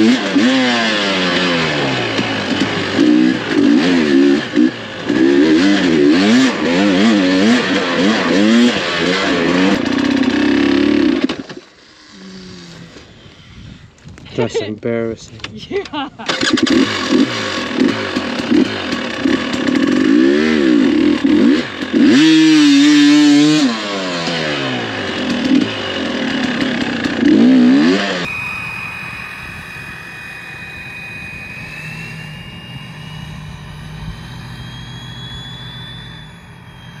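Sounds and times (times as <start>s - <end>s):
dirt bike engine revving: 0.0s - 13.2s, 16.2s - 37.0s
steady drone with high whine: 28.1s - 37.0s.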